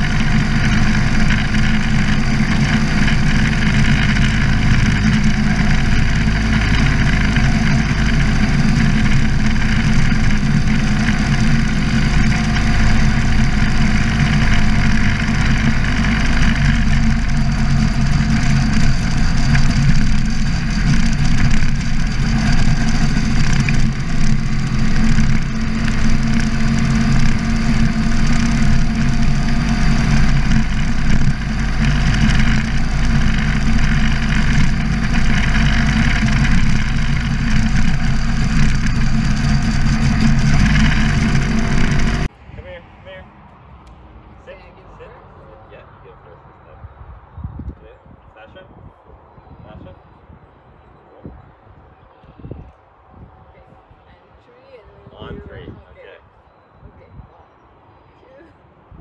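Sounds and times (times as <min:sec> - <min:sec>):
motorcycle engine running: 0:00.0 - 0:43.2.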